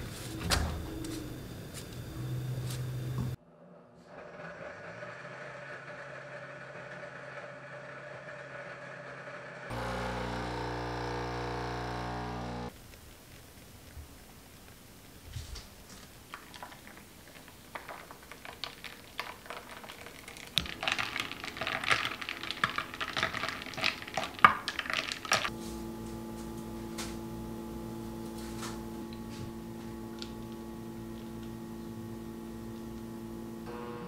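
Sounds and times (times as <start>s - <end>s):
electrical hum: 0.0s - 3.4s, 9.7s - 12.8s, 20.1s - 34.0s.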